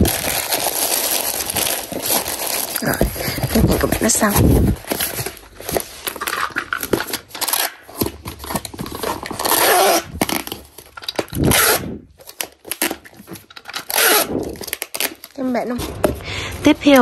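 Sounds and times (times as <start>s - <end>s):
packing tape rasping off dispenser: 4.1s - 15.4s.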